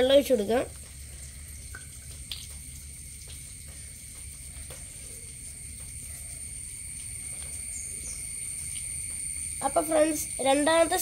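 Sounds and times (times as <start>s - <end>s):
high-pitched insect drone: 2.9s - 11.0s.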